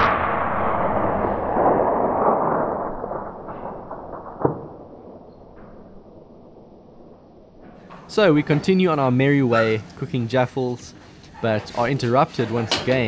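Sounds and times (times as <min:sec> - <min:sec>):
rifle shot echo: 0:00.0 - 0:07.8.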